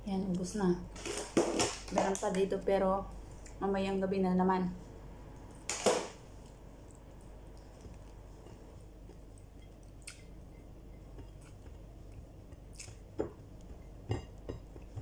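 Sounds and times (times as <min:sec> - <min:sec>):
person chewing: 0:06.3 - 0:13.7.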